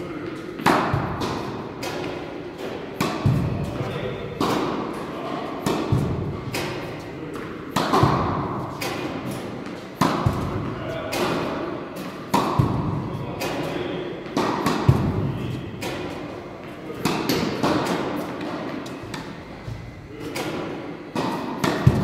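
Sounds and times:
tennis racket hitting ball: 0.2 - 5.0, 5.6 - 19.4, 20.2 - 22.0.

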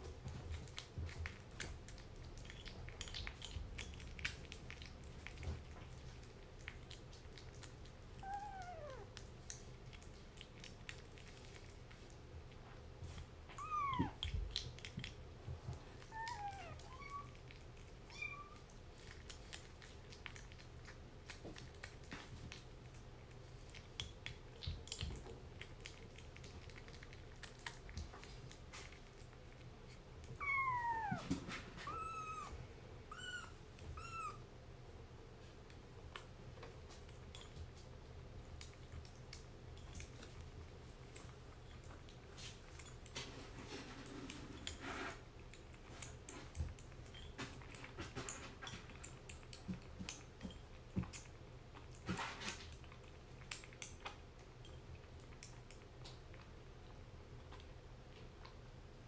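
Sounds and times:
kitten meowing: 8.2 - 9.0, 13.6 - 14.2, 16.1 - 17.3, 30.4 - 34.4.

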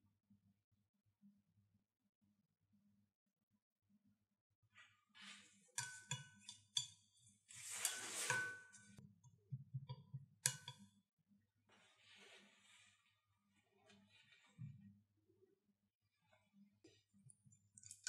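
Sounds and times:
spoon clinking against dish: 5.8 - 7.0, 10.4 - 10.9.

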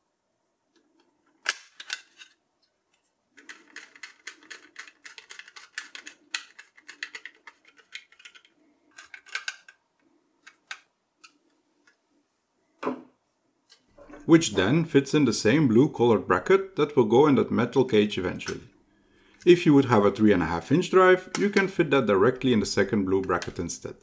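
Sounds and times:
plastic clicks: 0.7 - 12.0.

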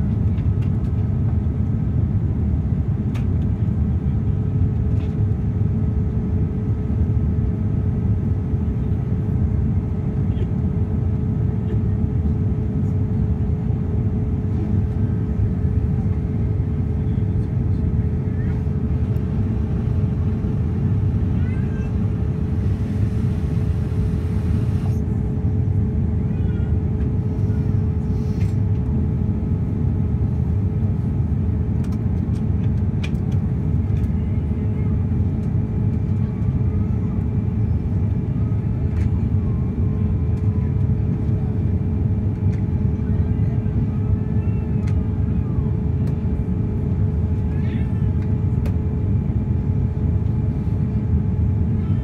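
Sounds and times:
airliner engine roar: 0.0 - 52.0
steady hum tone: 13.8 - 31.8.

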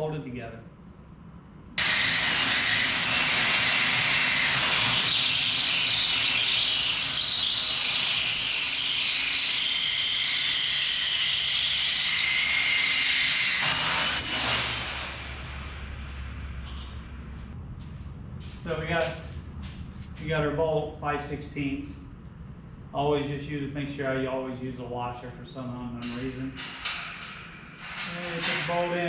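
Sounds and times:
drill boring through steel: 1.8 - 16.0.

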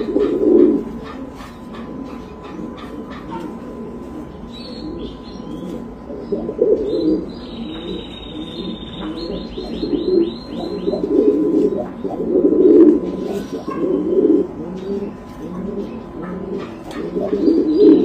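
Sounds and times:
pigeons cooing: 0.0 - 18.0
small bird chirping: 4.4 - 12.5.

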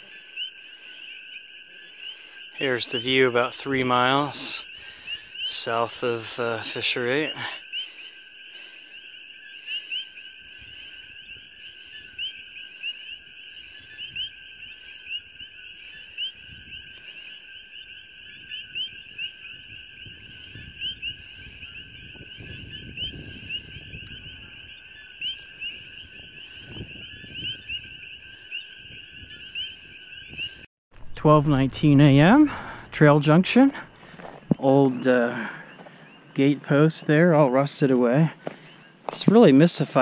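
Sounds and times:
frogs calling two-note calls: 0.0 - 30.6.

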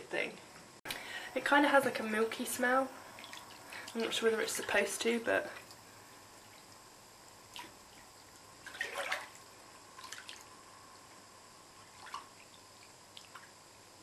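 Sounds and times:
hand splashing bath water: 3.2 - 4.8, 7.5 - 10.5, 11.8 - 13.5.

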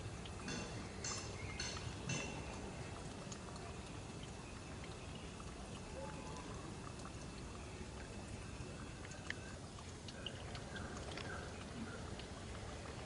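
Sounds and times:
faint ticks: 8.9 - 13.0.

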